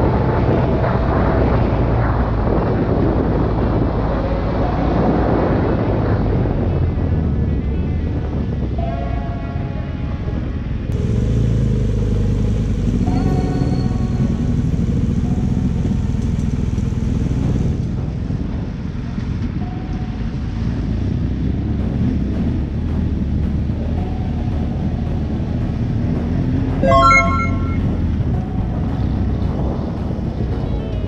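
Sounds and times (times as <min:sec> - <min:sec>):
vehicle engine rumbling: 0:09.7 - 0:31.0.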